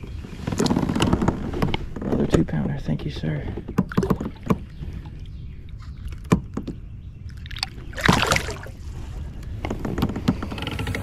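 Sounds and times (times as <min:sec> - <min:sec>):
water splashing: 0:07.4 - 0:08.8.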